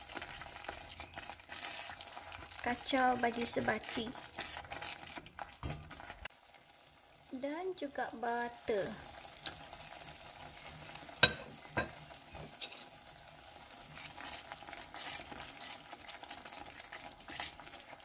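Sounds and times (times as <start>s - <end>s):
sambal sizzling and bubbling in oil: 0.0s - 18.0s
spatula scraping pot: 0.1s - 6.3s, 10.6s - 13.0s, 13.7s - 18.0s.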